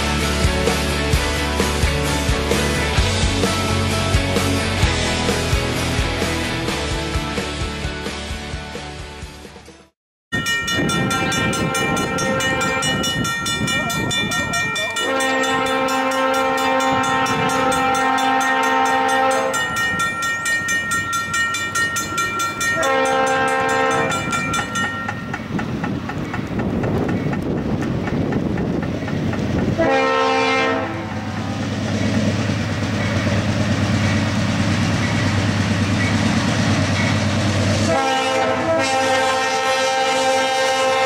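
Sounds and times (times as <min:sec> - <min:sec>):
freight train rumble: 0:00.0 - 0:41.0
locomotive air horn blasts: 0:15.0 - 0:19.7, 0:22.8 - 0:24.3, 0:29.8 - 0:31.7, 0:37.8 - 0:41.0.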